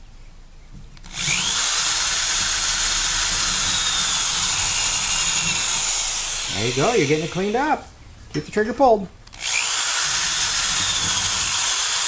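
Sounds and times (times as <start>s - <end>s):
drill wire brush scouring metal: 1.0s - 7.9s, 9.4s - 12.0s.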